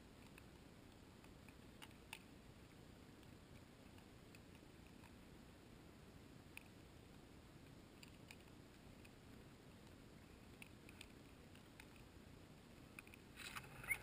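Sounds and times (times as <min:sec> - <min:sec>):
crackling: 0:06.2 - 0:14.0.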